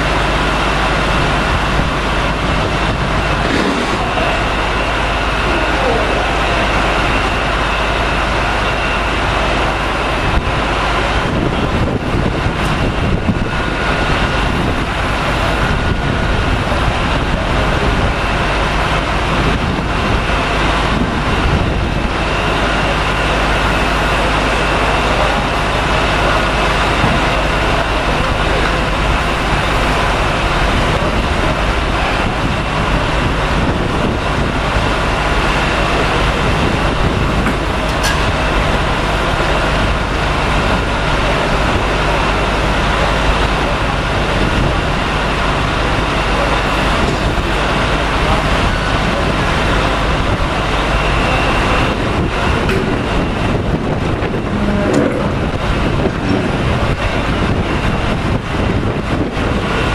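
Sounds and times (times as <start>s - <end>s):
ferry machinery drone: 0.0s - 59.9s.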